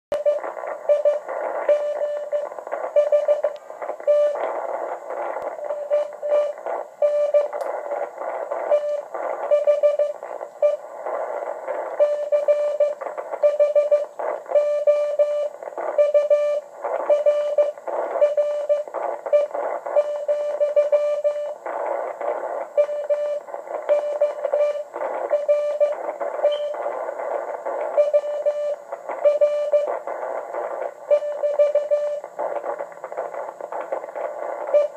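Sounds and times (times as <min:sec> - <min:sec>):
radio hiss and static: 0:00.1 - 0:34.9
morse code beeps: 0:00.2 - 0:04.4, 0:05.5 - 0:07.6, 0:08.6 - 0:10.9, 0:11.9 - 0:21.6, 0:22.8 - 0:26.9, 0:27.9 - 0:30.0, 0:31.1 - 0:32.2.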